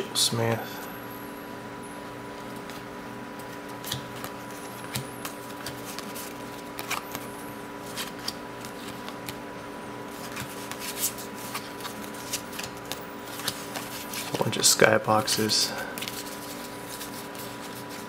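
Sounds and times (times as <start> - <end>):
steady background hum: 0.0 - 18.0
cards flicking and slapping: 3.4 - 9.4, 10.1 - 14.4.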